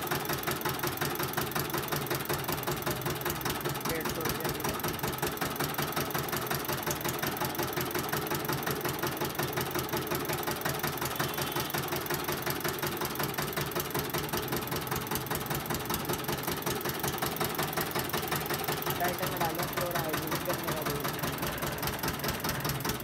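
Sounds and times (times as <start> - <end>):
juice crusher pulsing: 0.0 - 23.0.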